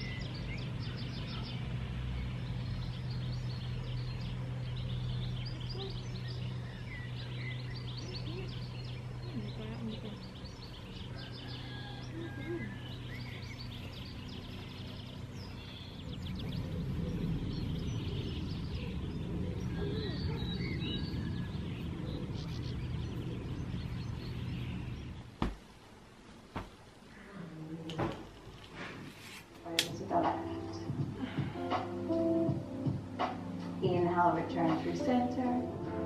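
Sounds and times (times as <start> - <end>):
low rumbling background: 0.0 - 26.3, 27.0 - 36.0
small birds chirping: 0.0 - 26.3.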